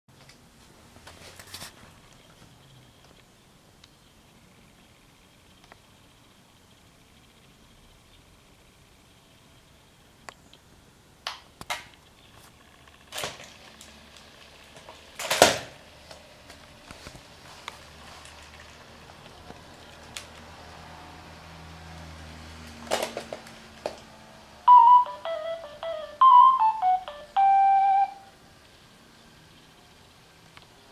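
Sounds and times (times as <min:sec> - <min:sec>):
faint quiet electronic tones: 0:24.7 - 0:28.3
robot dog startup melody: 0:24.7 - 0:28.3.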